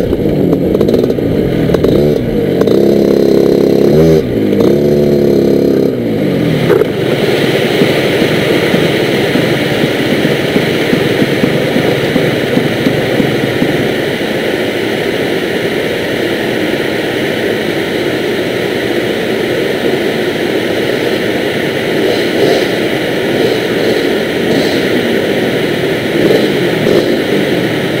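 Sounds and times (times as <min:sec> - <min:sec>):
kart engine coasting: 0:00.0 - 0:14.9
loud noisy rumble: 0:00.0 - 0:28.0.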